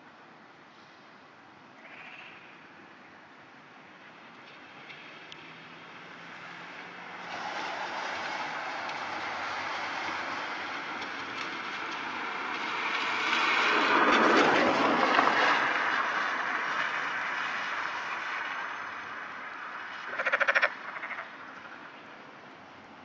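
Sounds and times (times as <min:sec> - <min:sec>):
frog croaking: 0:01.8 - 0:02.5, 0:20.1 - 0:21.8.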